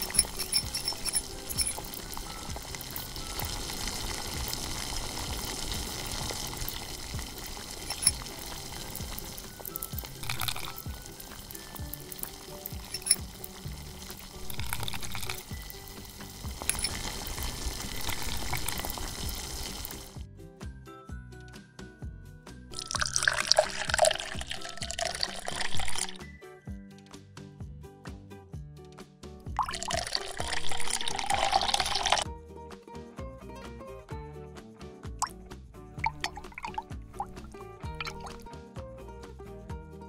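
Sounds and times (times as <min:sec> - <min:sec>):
syrup drizzling from a spoon: 0:00.0 - 0:20.2, 0:22.8 - 0:26.2, 0:29.6 - 0:32.2, 0:36.0 - 0:38.5
syrup sizzling in a wok: 0:00.0 - 0:20.2, 0:30.0 - 0:32.2
light background music: 0:00.0 - 0:40.0.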